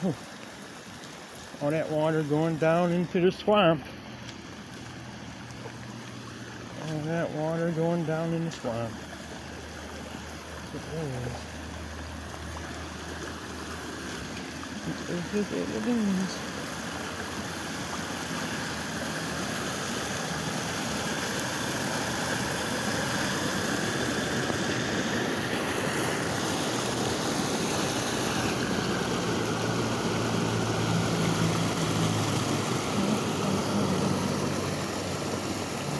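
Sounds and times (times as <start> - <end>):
water rushing into culvert pipe: 0.0 - 35.9.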